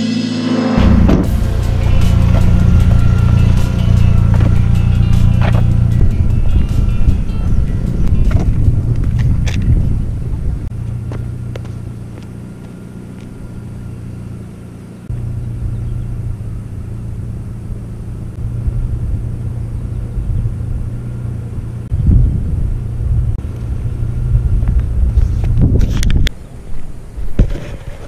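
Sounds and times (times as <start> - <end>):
wind buffeting microphone: 1.0 - 12.0, 18.4 - 28.0.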